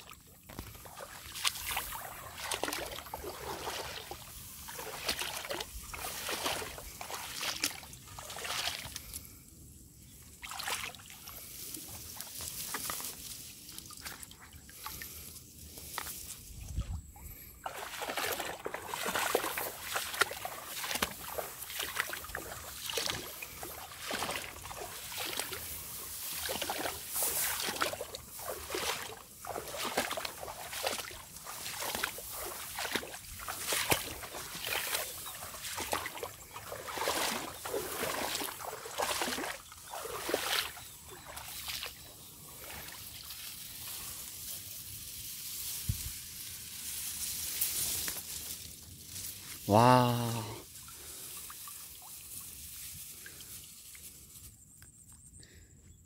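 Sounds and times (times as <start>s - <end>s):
wading through shallow water: 0.0s - 54.6s
plants swishing: 17.7s - 54.6s.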